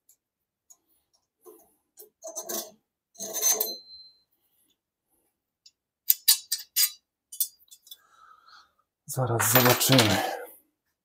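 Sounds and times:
steel bars scraping and knocking: 1.5s - 3.9s, 6.1s - 8.0s
metallic ring: 3.2s - 4.2s.

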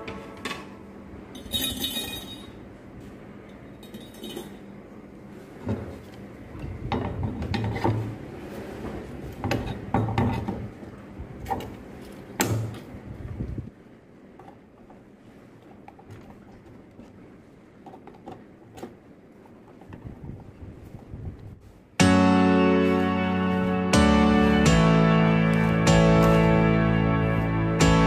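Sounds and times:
metal parts clinking on workbench: 1.3s - 2.6s, 3.8s - 4.6s.

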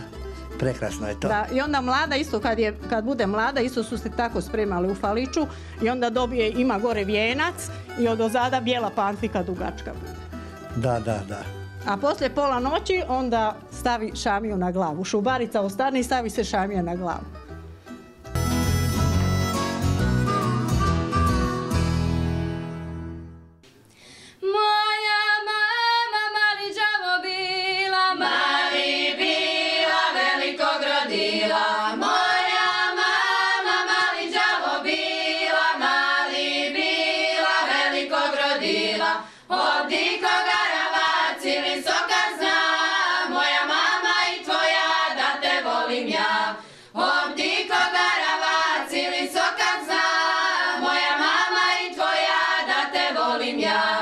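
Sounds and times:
women singing unaccompanied: 24.4s - 54.0s.

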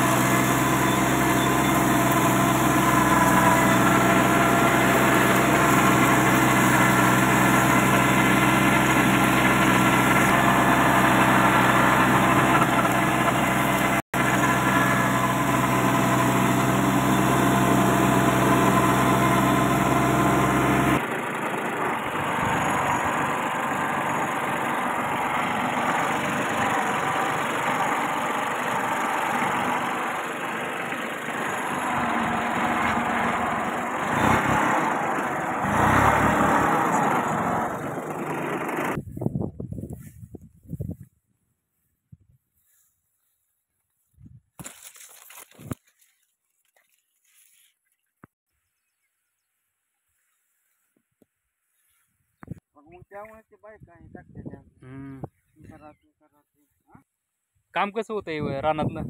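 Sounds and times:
tractor diesel engine running: 0.0s - 41.0s.

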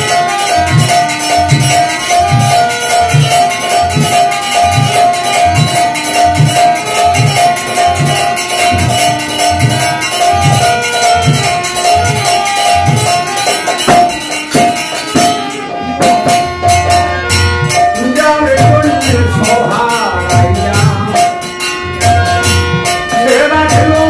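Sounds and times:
hand cymbals jingling: 0.0s - 24.0s
hand drum strokes: 0.0s - 24.0s
harmonium melody: 0.0s - 24.0s
man singing: 17.8s - 21.5s, 22.9s - 24.0s.

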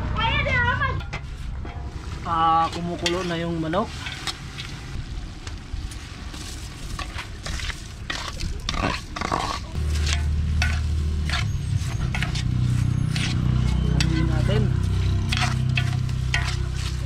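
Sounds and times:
low rumble: 0.0s - 17.0s
chicken sizzling: 1.9s - 17.0s
metal spatula scraping a pot: 2.5s - 5.0s, 6.8s - 17.0s.

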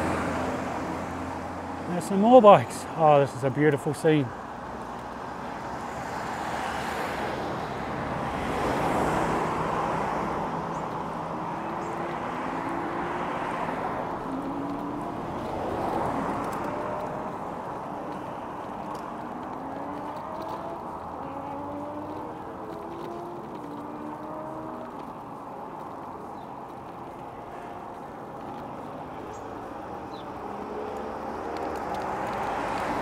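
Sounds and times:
road traffic: 0.0s - 33.0s
vehicles passing: 0.0s - 33.0s
distant racing motorcycles: 8.2s - 33.0s.

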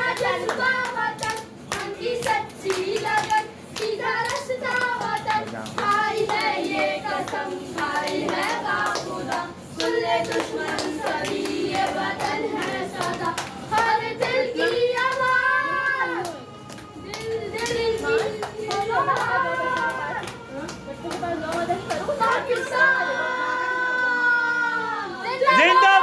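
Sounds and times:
hand claps: 0.0s - 15.4s, 16.2s - 22.7s.

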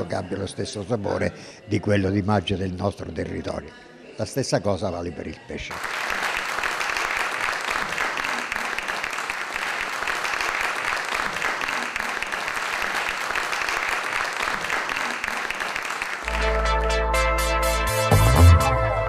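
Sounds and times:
crowd applauding: 5.7s - 16.8s
electronic music: 16.2s - 19.0s.

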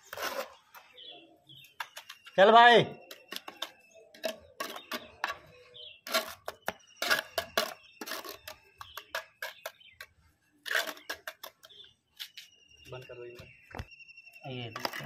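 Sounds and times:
trowel scraping wet mortar: 0.0s - 1.0s, 3.1s - 12.4s.

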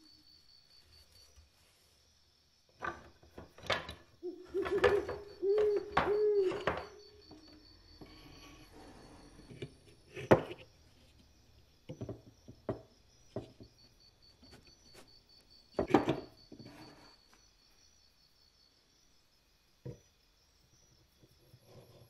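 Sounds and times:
faint high whine: 4.2s - 22.0s
tools knocking on workbench: 11.9s - 13.7s, 15.8s - 16.7s.

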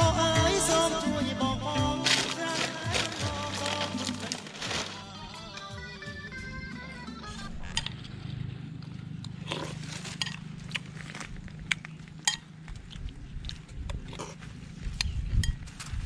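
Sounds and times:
person chewing and eating: 7.6s - 15.6s.

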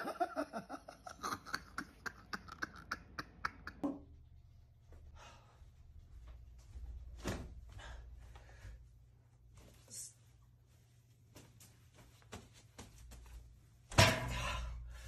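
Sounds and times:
man laughing hard: 0.0s - 3.9s
low room hum: 0.0s - 15.0s
soft rustles: 4.8s - 13.8s.

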